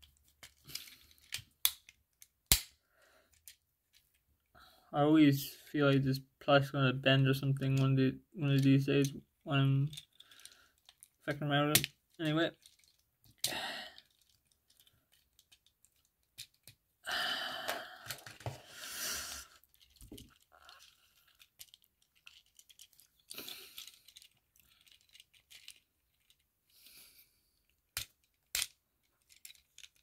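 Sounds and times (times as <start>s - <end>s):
plastic toy parts clicking: 0.1s - 4.1s, 9.8s - 16.8s, 17.7s - 18.5s, 19.6s - 26.4s, 27.6s - 30.0s
plastic rustling and rubbing: 19.4s - 26.5s.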